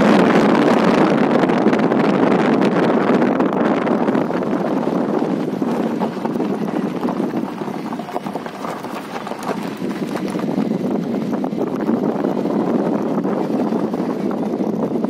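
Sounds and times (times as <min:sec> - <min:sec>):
tyres rumbling on gravel: 0:00.0 - 0:15.0
vehicle rattling and knocking: 0:03.4 - 0:15.0.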